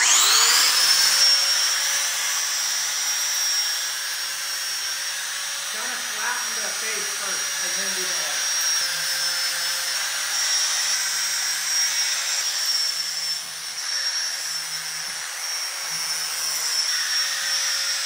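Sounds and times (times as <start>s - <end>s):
angle grinder grinding steel: 0.0s - 18.0s.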